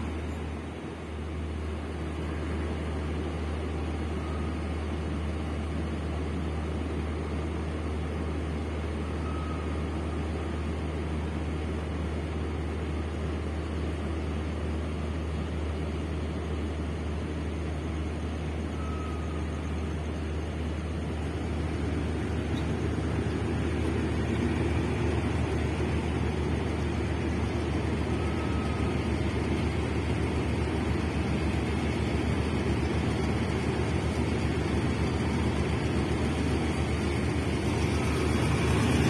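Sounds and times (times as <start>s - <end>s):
diesel train engine running: 0.0s - 39.0s
faint short high tone: 9.0s - 10.5s, 18.7s - 19.9s.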